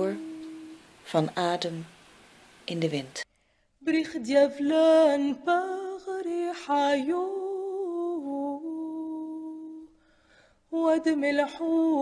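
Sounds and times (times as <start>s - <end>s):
woman singing a lullaby: 0.0s - 1.9s, 3.8s - 9.9s, 10.7s - 12.0s.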